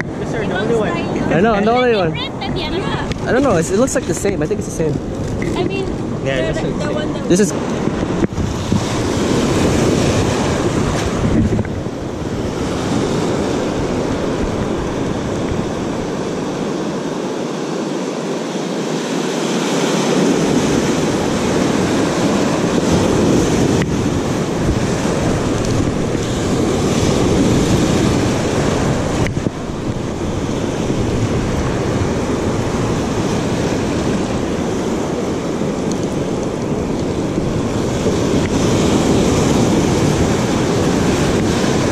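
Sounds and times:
ocean surf breaking: 0:00.0 - 0:41.9
wind buffeting microphone: 0:00.0 - 0:41.9.

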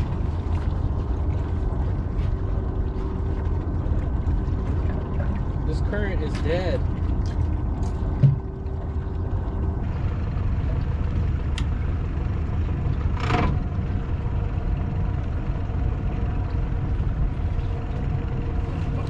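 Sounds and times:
water splash: 0:00.0 - 0:10.0
outboard motor running: 0:00.0 - 0:19.0
wind: 0:00.0 - 0:19.0.

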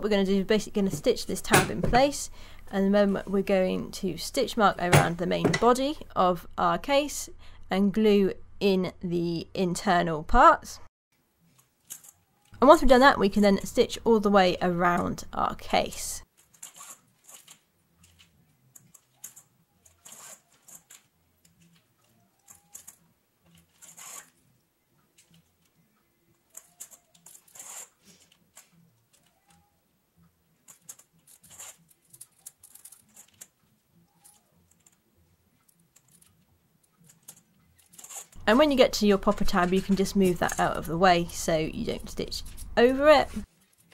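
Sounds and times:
thread rasping through leather: 0:16.4 - 0:18.2, 0:18.8 - 0:21.8, 0:22.4 - 0:24.4, 0:26.5 - 0:29.6, 0:30.7 - 0:35.0, 0:37.0 - 0:38.4
awl piercing leather: 0:16.6 - 0:24.4, 0:26.5 - 0:29.8, 0:30.8 - 0:35.0.

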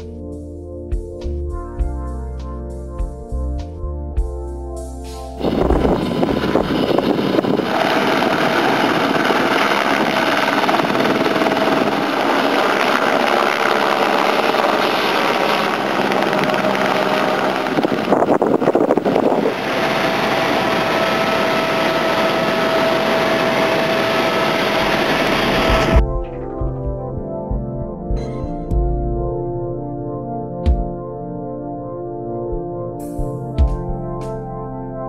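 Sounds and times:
helicopter turbine and rotor: 0:05.4 - 0:26.2.

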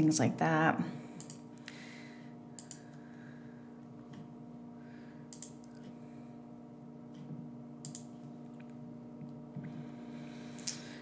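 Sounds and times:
low electrical hum: 0:00.0 - 0:11.0
soft computer clicks: 0:01.2 - 0:01.4, 0:02.6 - 0:02.8, 0:05.3 - 0:05.8, 0:07.8 - 0:08.1.

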